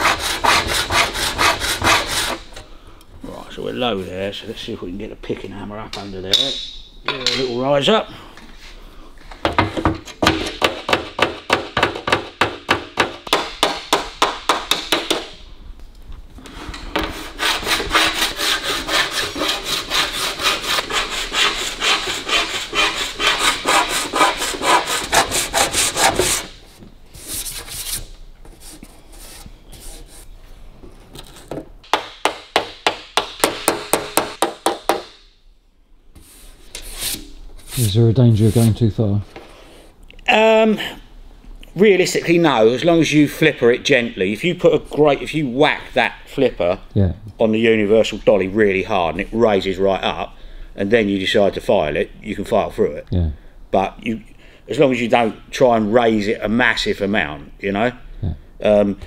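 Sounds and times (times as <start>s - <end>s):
file scraping metal panel: 0.0s - 2.5s, 16.9s - 26.6s.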